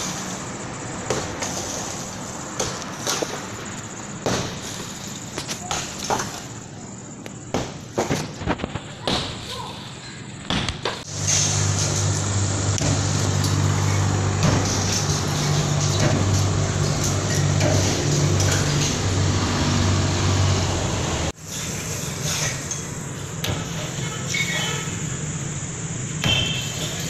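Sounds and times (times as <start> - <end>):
engine humming: 11.0 - 22.1.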